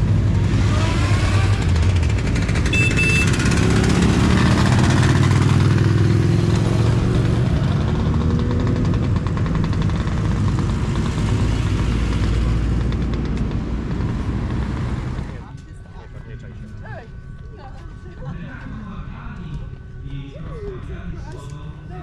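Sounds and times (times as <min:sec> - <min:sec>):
motorcycles riding past: 0:00.0 - 0:15.4
cars passing: 0:00.0 - 0:17.3.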